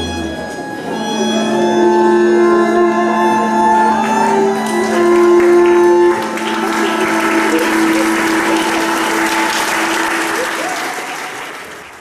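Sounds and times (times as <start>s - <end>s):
cello fiddle and accordion chord: 0.0s - 10.3s
audience applause: 3.8s - 12.0s.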